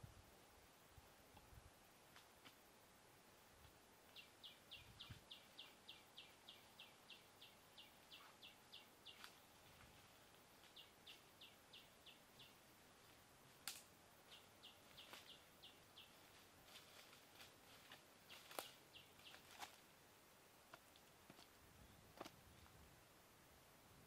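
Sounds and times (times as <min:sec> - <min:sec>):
twigs cracking underfoot: 0:13.6 - 0:13.9, 0:16.3 - 0:19.9.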